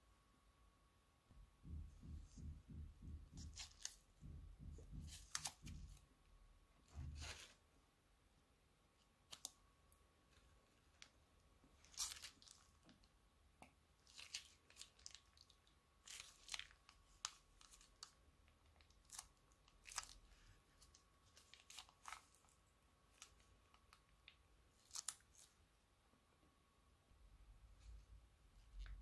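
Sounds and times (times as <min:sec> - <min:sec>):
plastic bag crinkling: 0:11.8 - 0:12.8, 0:14.0 - 0:18.2
slime crackling and popping: 0:11.8 - 0:13.1, 0:14.0 - 0:22.5.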